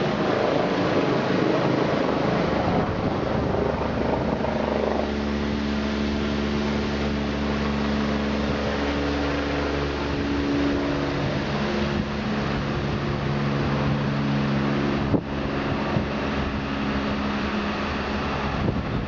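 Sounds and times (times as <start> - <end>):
helicopter rotor and turbine whir: 0.0 - 19.0.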